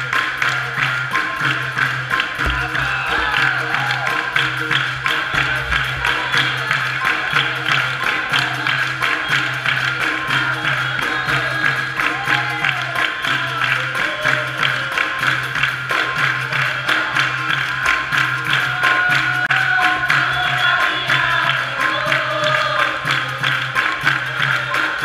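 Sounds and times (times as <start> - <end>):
berimbau: 0.0 - 12.0
hand percussion: 0.0 - 25.0
people clapping along: 0.0 - 25.0
voices singing: 1.0 - 15.1.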